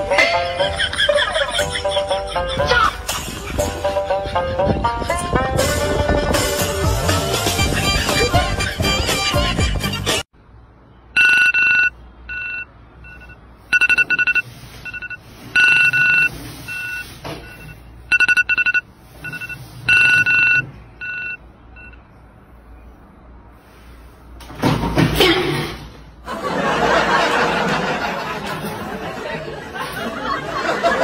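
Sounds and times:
music: 0.0s - 10.3s
phone alarm beeping tune: 11.2s - 22.0s.

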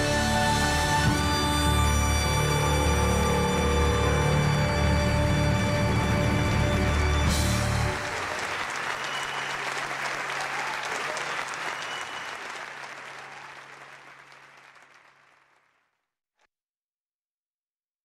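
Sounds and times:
audience applauding: 5.2s - 15.9s.

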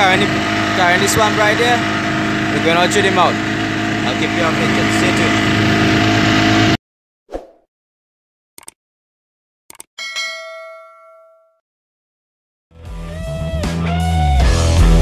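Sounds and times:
brief swish: 7.3s - 7.7s
quick double clicks: 8.6s - 8.8s, 9.7s - 9.9s
notification bell ding: 10.0s - 11.6s.

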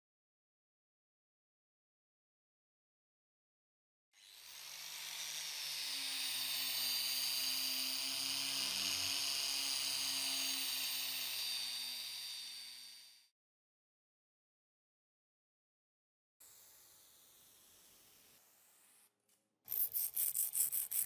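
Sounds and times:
wire brush power tool whine: 4.2s - 13.3s.

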